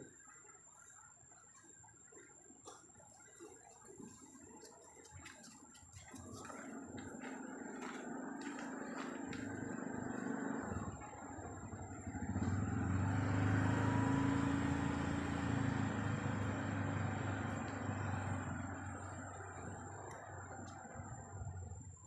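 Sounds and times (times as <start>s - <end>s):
vehicle engine passing by: 6.0s - 22.0s.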